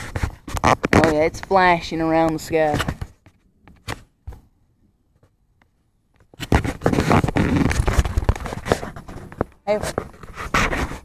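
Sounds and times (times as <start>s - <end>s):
rough scraping on microphone: 0.0s - 4.0s, 6.4s - 11.0s.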